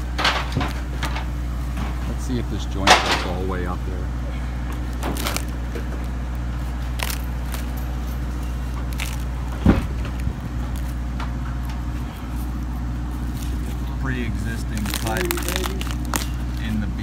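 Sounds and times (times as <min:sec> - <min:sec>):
low hum: 0:00.0 - 0:17.0
wood crumbling and cracking: 0:04.7 - 0:11.8, 0:14.5 - 0:16.7
blade scraping rotted wood: 0:04.7 - 0:17.0.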